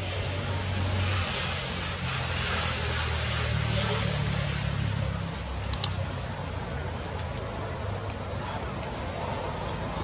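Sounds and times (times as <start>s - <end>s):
mouse clicks: 5.7s - 5.9s.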